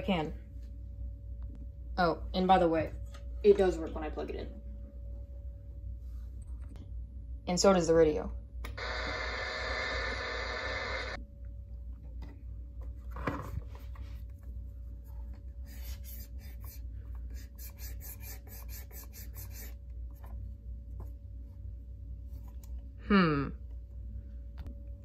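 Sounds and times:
radio sound: 8.8 - 11.2
cotton swab scratching plastic: 15.6 - 19.8.

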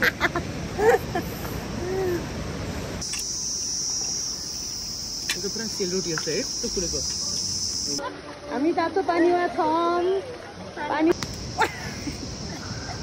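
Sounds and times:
high insect chirring: 3.0 - 8.0.

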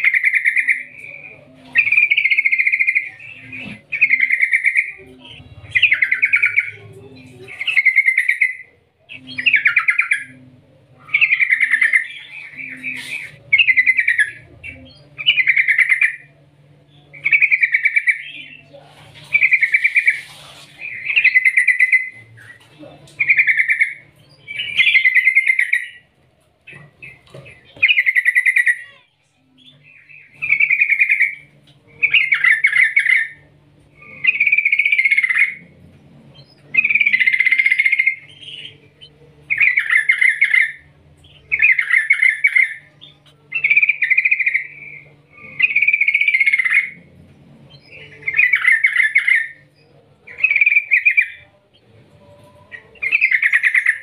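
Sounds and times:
bird singing bubbly trills: 27.0 - 51.8.

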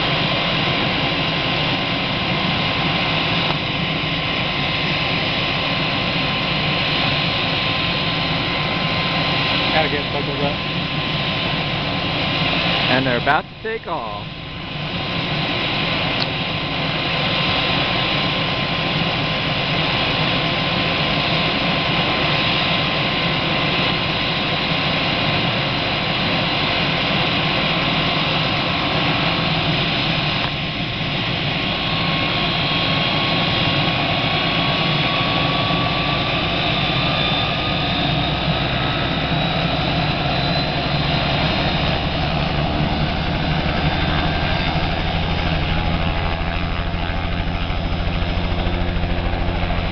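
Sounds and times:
helicopter engine and rotor: 0.0 - 49.9
rising whine: 28.7 - 49.9.

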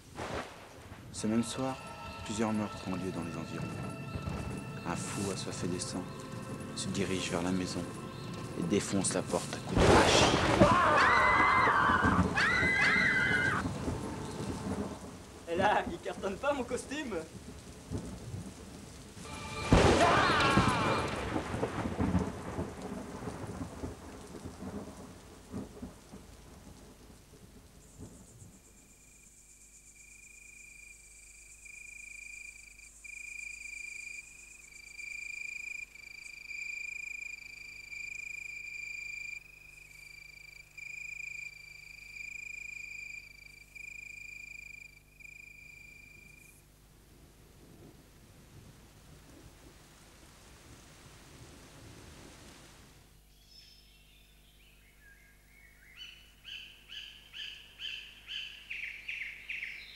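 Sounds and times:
thunder rumbling: 0.0 - 28.6
rain: 0.0 - 59.9
low steady notes: 0.8 - 10.0.

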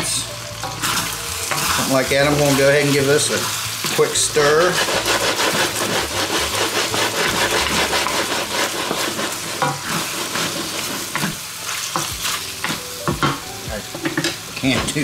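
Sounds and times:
meat sizzling in a wok: 0.0 - 15.0
wooden spatula scraping a pan: 0.8 - 12.8.

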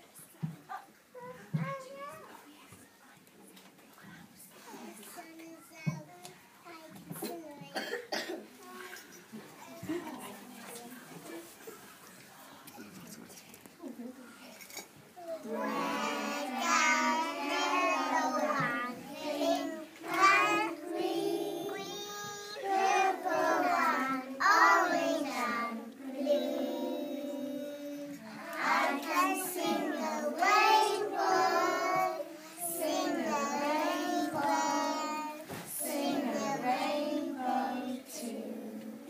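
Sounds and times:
young children singing: 15.3 - 39.0.

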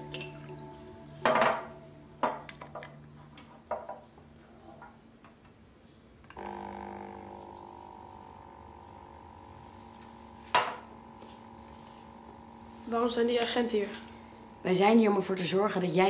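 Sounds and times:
background music chord: 0.0 - 3.4.

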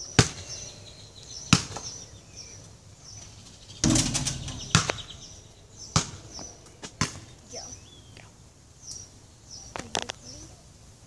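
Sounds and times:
small birds chirping: 0.0 - 11.0
basketball hoop rattling: 3.8 - 5.5.

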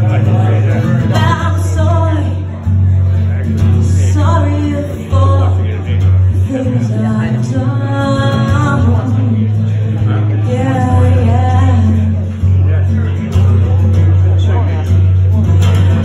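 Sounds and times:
acoustic guitar: 0.0 - 16.0
woman singing: 1.0 - 2.6, 3.8 - 12.3.

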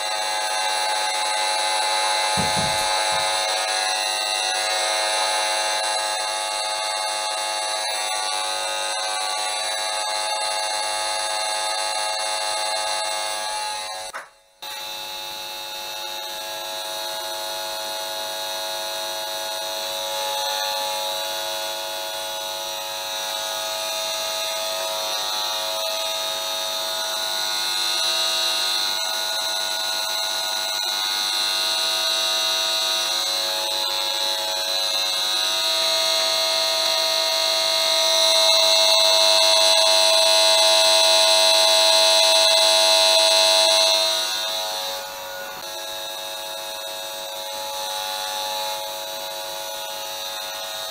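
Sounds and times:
meter electric buzz: 0.0 - 50.9.

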